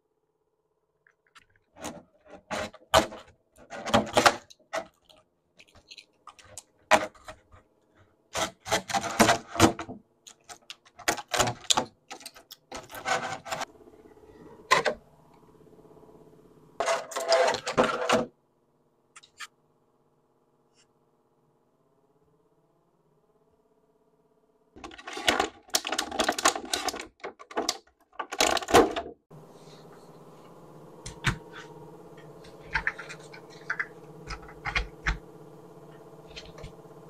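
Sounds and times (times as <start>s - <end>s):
plastic blister tray crinkling: 24.8s - 29.0s, 32.5s - 35.2s.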